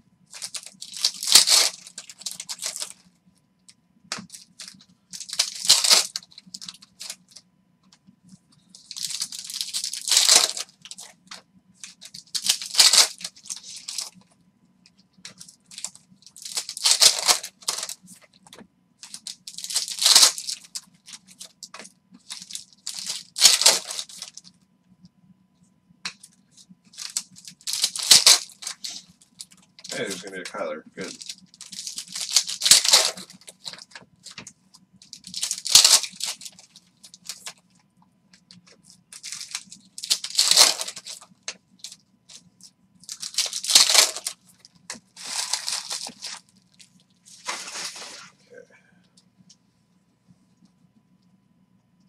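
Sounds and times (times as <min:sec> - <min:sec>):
foil packs torn and crinkled: 0:00.3 - 0:03.0, 0:04.1 - 0:07.4, 0:08.8 - 0:14.2, 0:15.3 - 0:18.2, 0:19.0 - 0:24.4, 0:26.9 - 0:30.3, 0:31.0 - 0:34.4, 0:35.0 - 0:37.6, 0:39.1 - 0:42.0, 0:43.0 - 0:44.5, 0:45.2 - 0:48.3.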